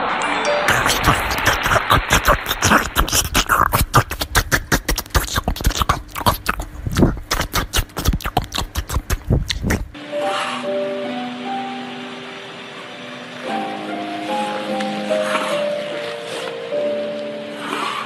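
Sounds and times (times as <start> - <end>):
dog crunching watermelon: 0.7 - 10.0.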